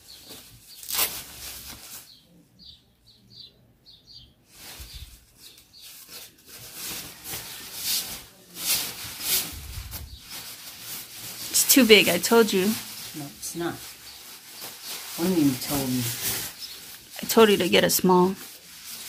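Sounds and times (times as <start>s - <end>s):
bird chirping: 2.0s - 6.2s, 11.9s - 18.1s
fabric rustling: 4.5s - 19.0s.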